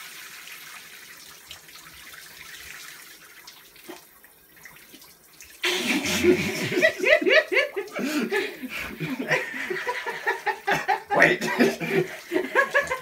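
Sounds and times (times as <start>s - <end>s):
man laughing loudly: 5.6s - 13.0s
shower spray hissing: 5.6s - 13.0s.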